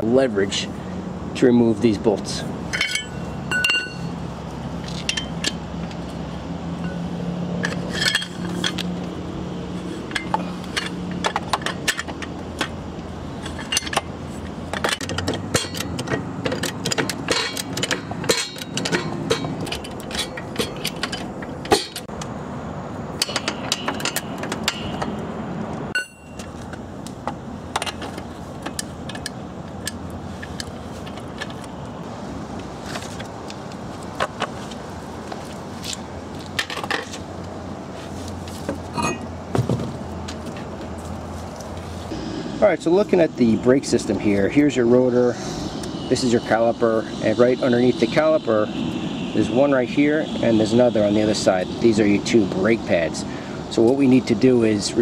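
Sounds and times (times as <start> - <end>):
lug wrench clinking on lug nuts: 2.6 - 6.2, 6.8 - 22.3, 23.1 - 25.2, 25.9 - 31.8.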